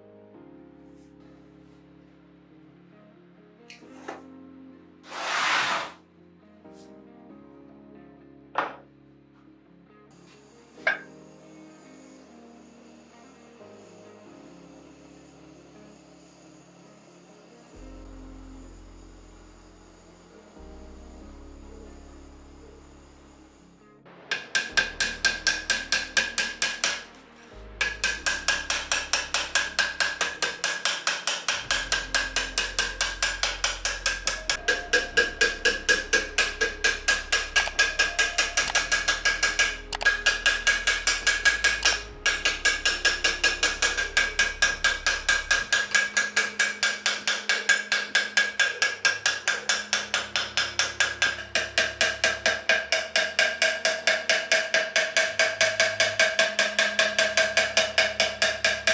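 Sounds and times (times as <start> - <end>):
hammer tapping metal: 10.8 - 11.1, 24.3 - 27.2, 27.8 - 58.9.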